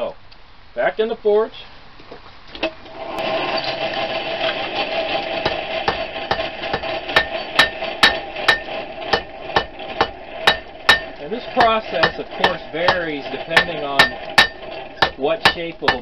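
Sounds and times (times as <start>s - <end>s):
hammer striking steel on anvil: 5.4s - 16.0s.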